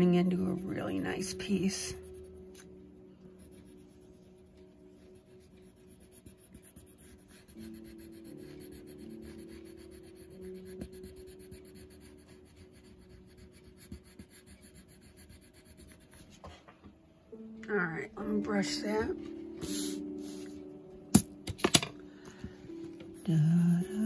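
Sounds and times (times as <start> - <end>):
soft piano music: 0.0 - 16.4, 17.0 - 24.0
colored pencil scratching on paper: 0.3 - 16.6, 23.1 - 24.0.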